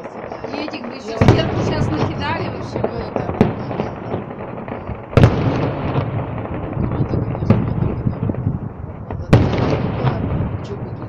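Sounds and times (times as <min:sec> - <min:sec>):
dense firework crackling: 0:00.0 - 0:11.0
firework shell bursts banging: 0:00.0 - 0:11.0.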